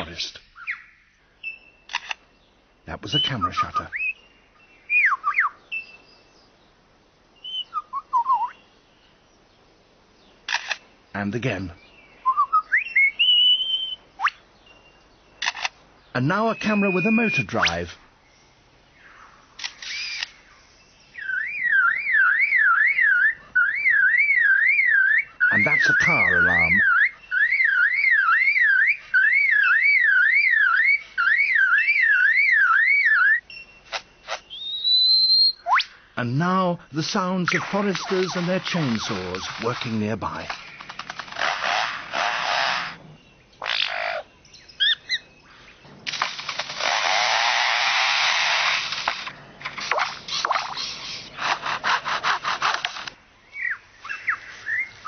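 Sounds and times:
bird whistling and warbling: 3.0s - 4.2s, 4.9s - 6.1s, 7.4s - 8.6s, 12.2s - 14.4s, 16.2s - 17.8s, 19.8s - 20.4s, 21.2s - 36.0s, 43.6s - 45.3s, 53.6s - 55.0s.

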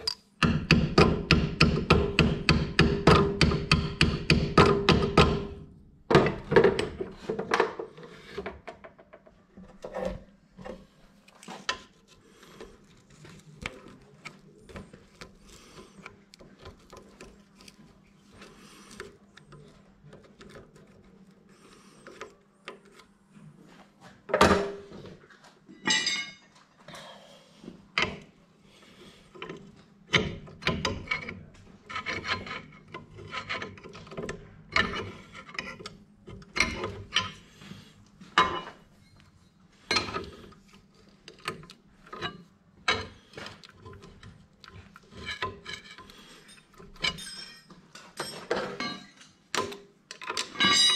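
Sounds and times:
tools and metal parts clattering: 25.7s - 26.8s, 29.4s - 37.6s, 38.3s - 39.2s, 41.2s - 50.9s.

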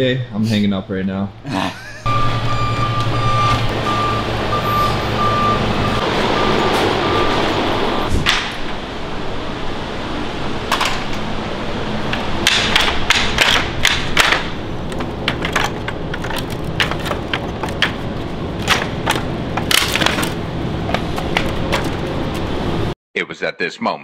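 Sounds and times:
wooden boards knocking and clattering: 12.1s - 22.4s.

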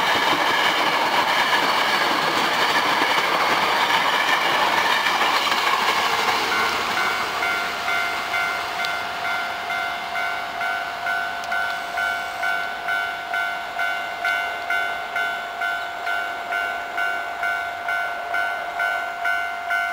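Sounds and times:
steady ringing tone: 6.5s - 19.9s.

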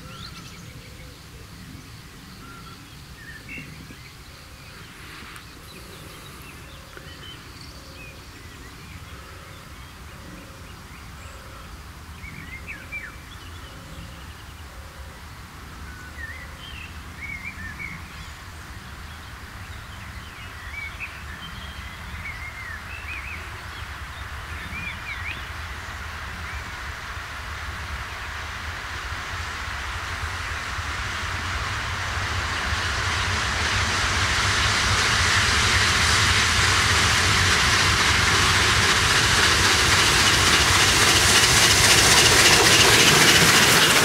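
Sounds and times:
birds chirping: 0.0s - 11.6s
steam locomotive rumbling: 0.0s - 44.0s.

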